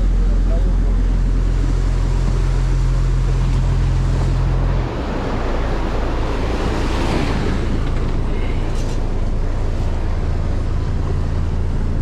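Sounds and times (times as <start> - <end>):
boat engine rumbling: 0.0 - 12.0
water rushing past hull: 0.0 - 12.0.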